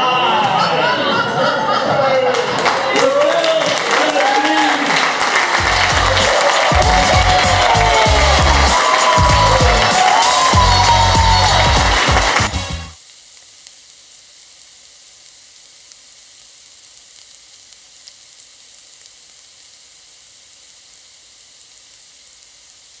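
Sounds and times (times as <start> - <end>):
music: 5.6 - 13.0
food sizzling in hot oil: 12.9 - 23.0.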